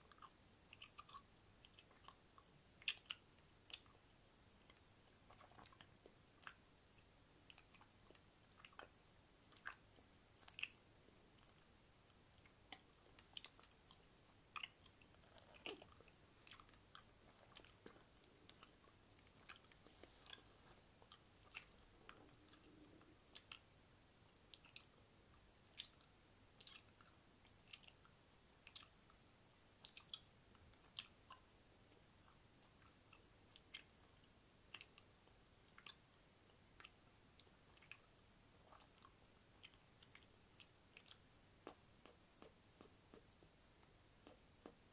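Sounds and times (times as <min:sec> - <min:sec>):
wet mouth clicks and smacks: 0:00.1 - 0:04.0, 0:07.5 - 0:09.8, 0:14.6 - 0:23.7, 0:25.6 - 0:29.0, 0:29.8 - 0:31.5, 0:34.7 - 0:36.0, 0:38.6 - 0:43.4, 0:44.2 - 0:44.9.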